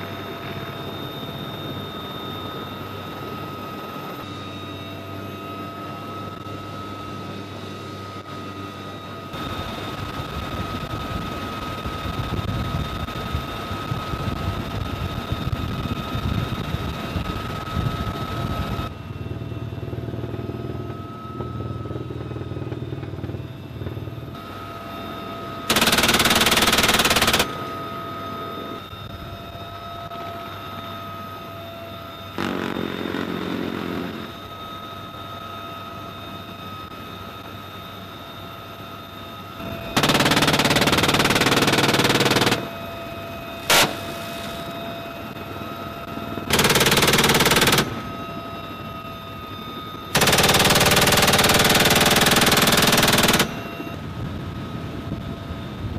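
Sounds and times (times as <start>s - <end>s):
helicopter rotor rumble: 0.0s - 55.9s
helicopter turbine whine: 0.0s - 55.9s
machine gun burst: 25.7s - 27.5s, 39.9s - 42.7s, 43.7s - 44.1s, 46.5s - 48.0s, 50.2s - 53.6s.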